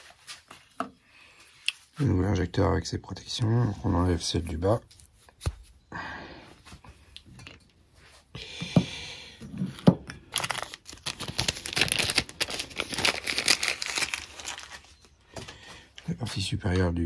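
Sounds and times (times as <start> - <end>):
plastic packaging crinkling: 10.1 - 15.2.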